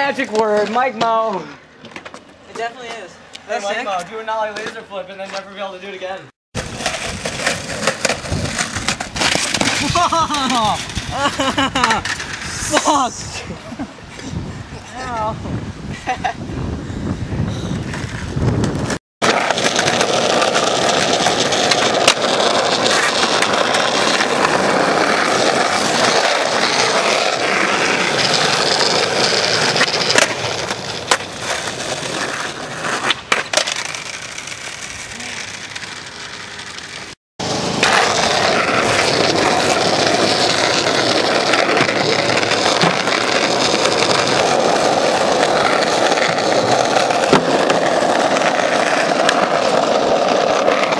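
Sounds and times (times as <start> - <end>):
skateboard wheels rolling on asphalt: 0.0 - 50.9
skateboard clacks: 6.6 - 13.0, 17.9 - 50.9.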